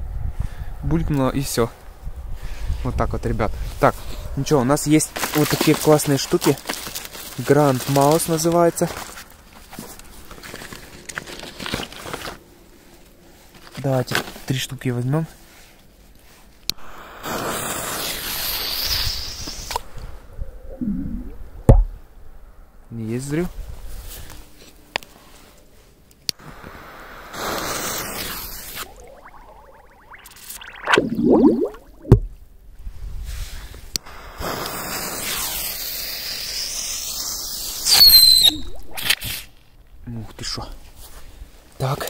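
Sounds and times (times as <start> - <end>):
firecracker fuse hissing: 16.7 - 19.9, 26.4 - 29.9, 33.5 - 39.5
loud whistle: 37.9 - 38.8.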